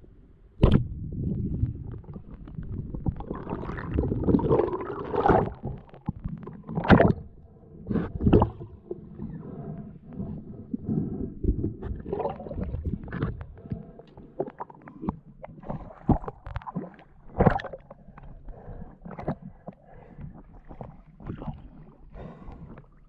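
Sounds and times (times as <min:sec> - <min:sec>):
muffled underwater gurgling: 0:00.6 - 0:23.0.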